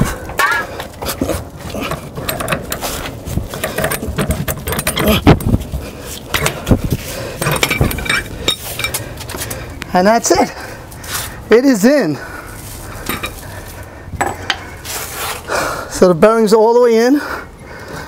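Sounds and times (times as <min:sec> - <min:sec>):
hammer knocking on metal tool: 0:14.2 - 0:14.6.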